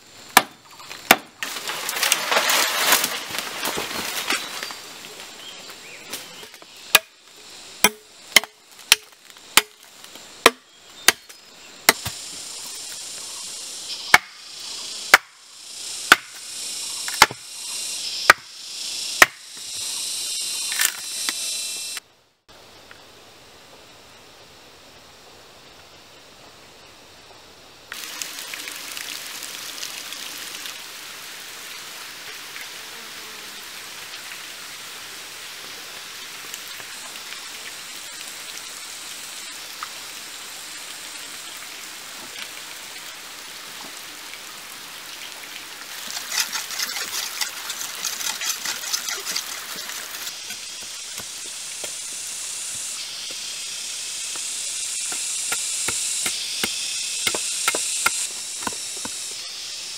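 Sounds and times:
rainforest hiss: 0.0 - 59.9
machete cutting wood: 0.3 - 3.1, 6.9 - 7.1, 7.8 - 12.2, 14.1 - 14.4, 15.1 - 15.4, 16.1 - 16.4, 17.0 - 17.5, 18.3 - 18.6, 19.2 - 19.6, 46.0 - 52.0, 54.3 - 59.3
bamboo poles clattering: 0.3 - 4.6, 46.0 - 51.3.

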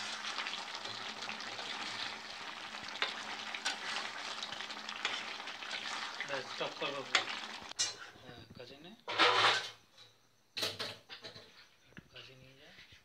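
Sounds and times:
curry sizzling and bubbling: 0.0 - 8.4.

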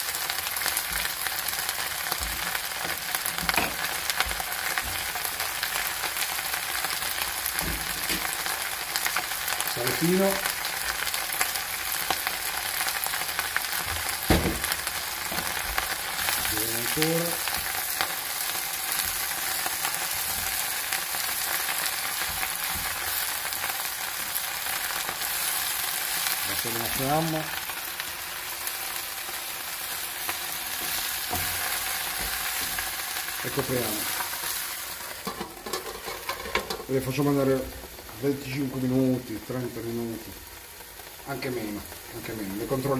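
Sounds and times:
greens sizzling in a frying pan: 0.0 - 42.9
knock: 14.3 - 14.6.

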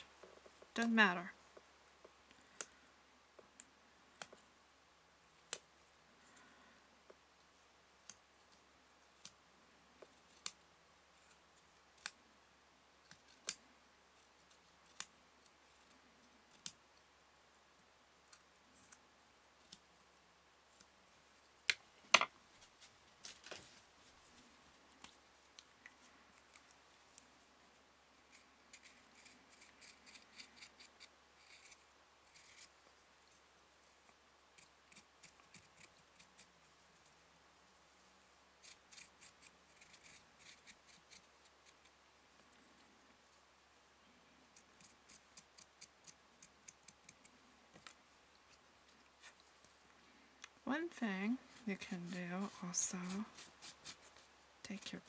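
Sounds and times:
rustling of strip being handled: 18.3 - 34.2.

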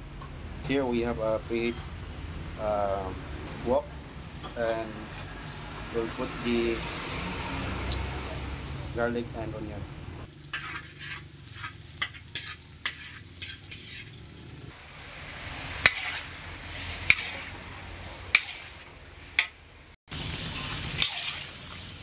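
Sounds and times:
garlic and onion sizzling in a wok: 10.3 - 22.0
metal spatula scraping a wok: 10.4 - 19.6, 20.6 - 21.7.

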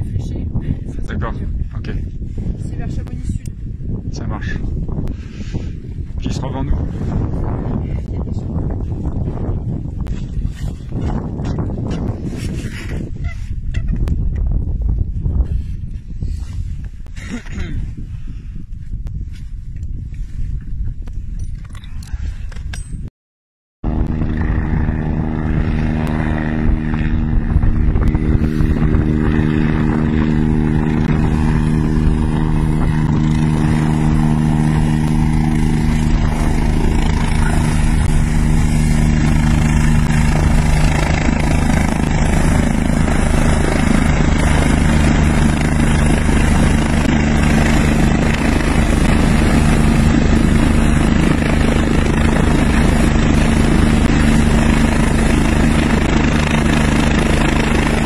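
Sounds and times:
helicopter rotor and engines droning: 23.8 - 58.0
rushing roar of rotor downwash: 24.0 - 58.0.

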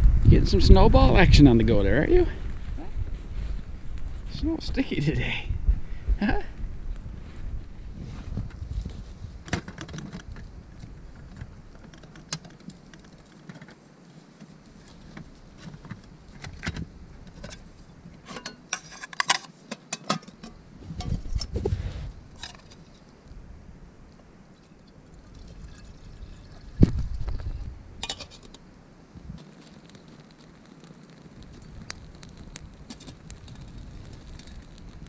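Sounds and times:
metal pots clinking and clattering: 18.2 - 21.1, 28.0 - 28.6.

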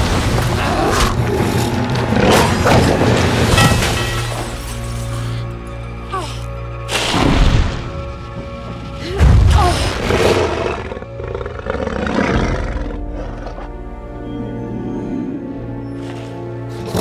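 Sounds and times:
dark orchestral score: 0.0 - 17.0
dragon roaring growl: 9.8 - 13.7.

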